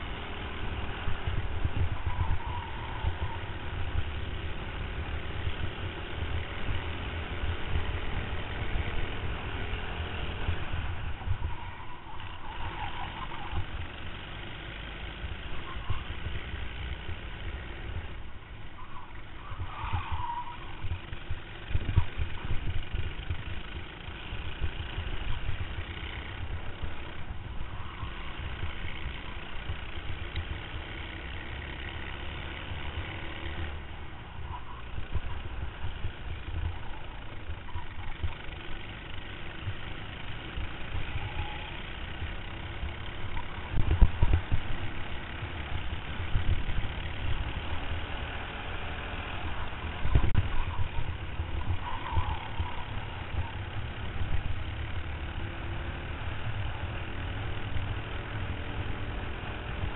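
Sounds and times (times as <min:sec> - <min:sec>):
kart engine racing: 0:00.0 - 0:59.9
wind rumble on microphone: 0:00.7 - 0:04.2, 0:19.3 - 0:23.6, 0:43.2 - 0:45.0, 0:49.4 - 0:54.6.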